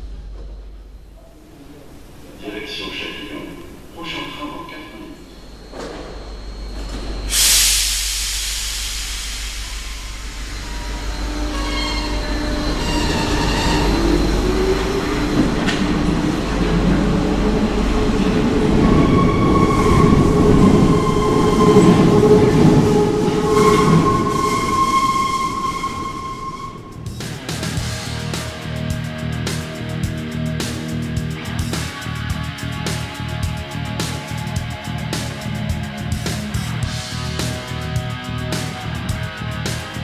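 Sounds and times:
high wheel squeals: 0:05.1 - 0:07.4, 0:10.0 - 0:16.2, 0:18.7 - 0:27.5
train wheels rumbling on rails: 0:05.3 - 0:40.0
air hiss: 0:07.3 - 0:11.4.

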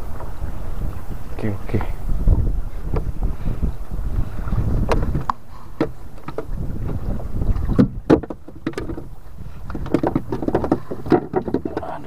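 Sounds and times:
water against hull: 0:00.0 - 0:12.0
wind buffeting microphone: 0:00.0 - 0:12.0
knocks on wooden boat deck: 0:07.8 - 0:09.0.

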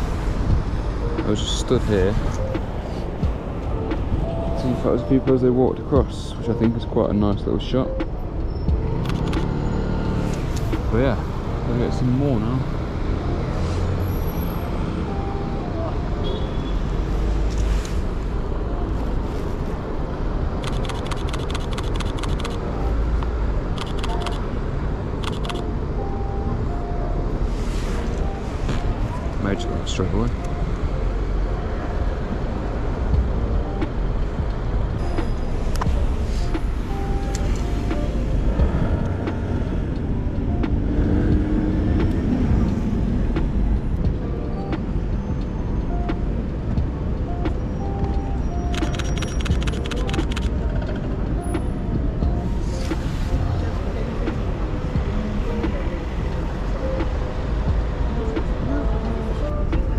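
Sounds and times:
city street traffic hum: 0:00.0 - 0:59.9
sharp clicks: 0:08.0 - 0:09.6, 0:20.6 - 0:22.6, 0:23.2 - 0:24.4, 0:25.2 - 0:25.7, 0:47.5 - 0:51.7
camera shutter clicks: 0:23.8 - 0:24.4, 0:25.2 - 0:25.6.

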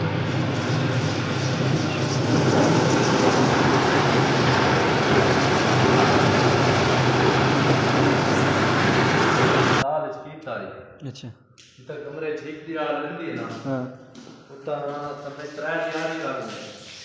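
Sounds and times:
floor grinder motor hum: 0:00.0 - 0:09.8.

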